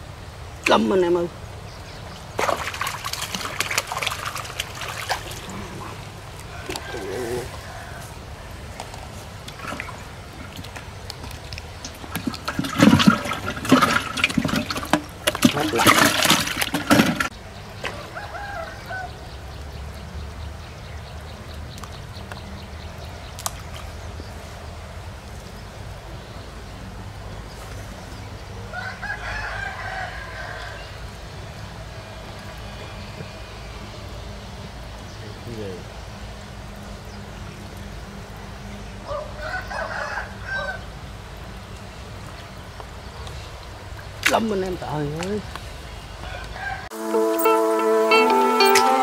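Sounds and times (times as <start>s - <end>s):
rooster crowing: 6.5s - 8.3s, 18.0s - 19.2s, 28.7s - 30.9s, 39.1s - 40.9s, 46.2s - 49.0s.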